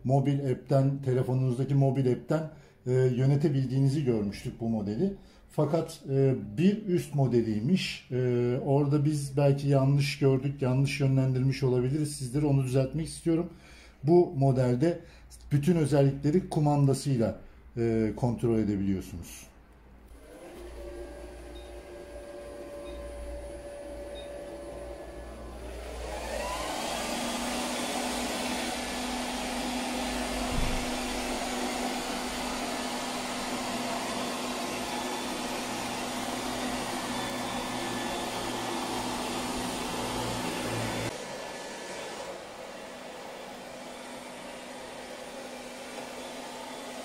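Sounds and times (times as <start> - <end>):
robot vacuum cleaner whirring: 20.1 - 47.0
single knock: 30.5 - 30.8.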